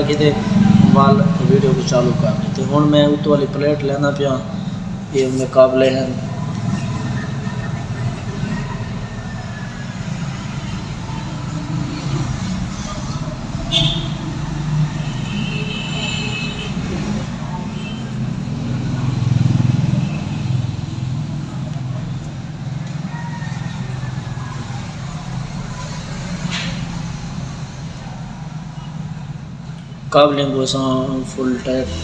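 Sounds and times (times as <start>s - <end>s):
low rumble of traffic: 0.0s - 32.0s.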